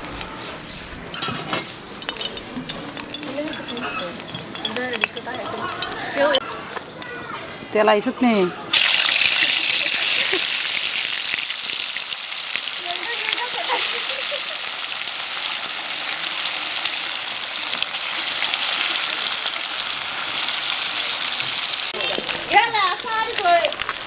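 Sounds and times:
fish frying in hot oil: 8.7s - 24.0s.

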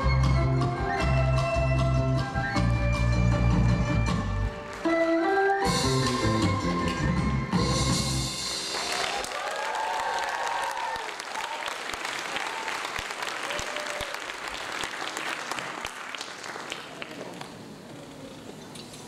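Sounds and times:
audience applauding: 8.6s - 17.7s.

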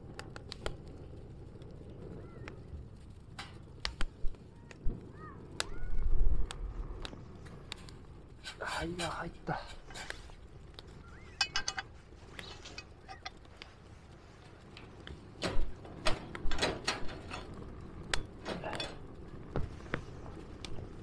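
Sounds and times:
metal camp cookware clinking: 11.2s - 13.5s, 15.4s - 19.1s
cooking gear knocking and clattering: 11.3s - 13.4s, 15.4s - 19.1s.

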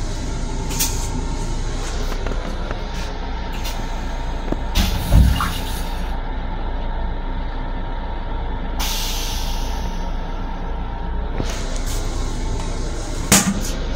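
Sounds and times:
train low rumble: 0.0s - 13.9s
air hiss with thump: 4.8s - 5.8s
long air hiss: 8.8s - 10.2s.

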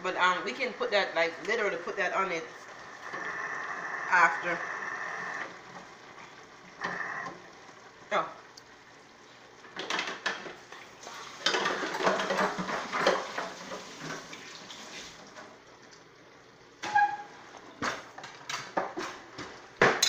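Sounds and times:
spatula scraping pan: 11.4s - 14.2s
utensil squeak: 16.8s - 17.4s.

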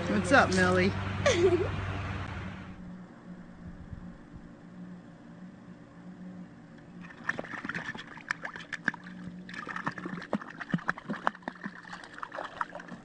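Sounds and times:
low steady hum: 0.0s - 13.0s
water splashing in pool: 7.0s - 13.0s.

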